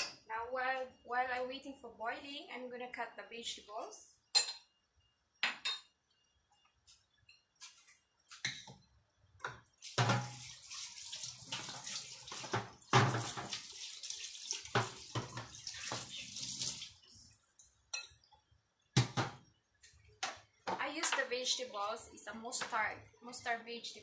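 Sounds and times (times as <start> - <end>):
dishes clinking: 4.3 - 4.8, 5.4 - 6.0, 17.9 - 18.3
tap running into sink: 9.8 - 13.8, 14.6 - 16.8.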